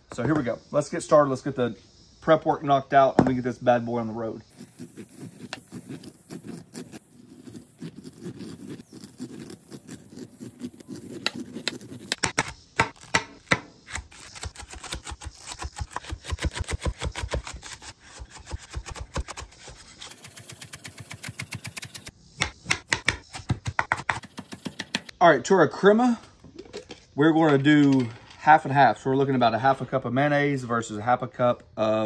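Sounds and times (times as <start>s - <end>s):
knife scraping corn cob: 4.4s - 22.1s.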